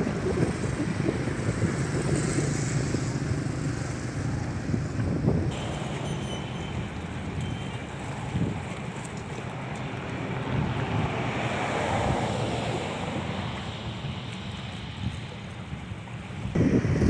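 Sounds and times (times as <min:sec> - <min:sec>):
wind on microphone: 0:00.0 - 0:05.8, 0:10.4 - 0:17.0.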